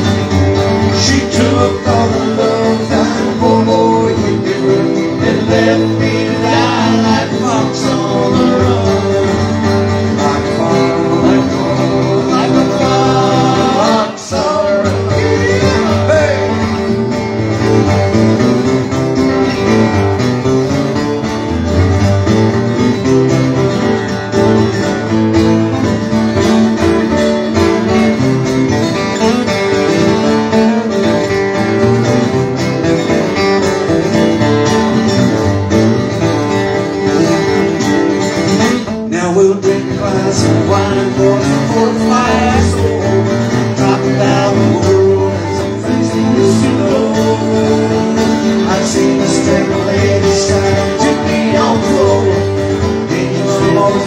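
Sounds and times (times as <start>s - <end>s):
acoustic guitars strummed: 0.0s - 54.0s
man singing: 0.8s - 17.0s, 39.0s - 54.0s.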